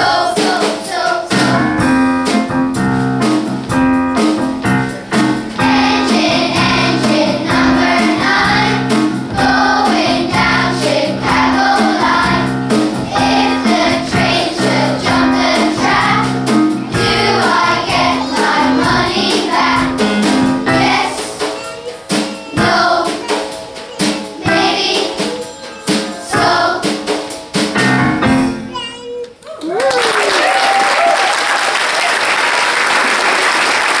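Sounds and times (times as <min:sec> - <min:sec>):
children's choir singing: 0:00.0 - 0:01.9, 0:04.8 - 0:27.6
keyboard accompaniment: 0:00.0 - 0:29.2
audience applause: 0:29.4 - 0:34.0.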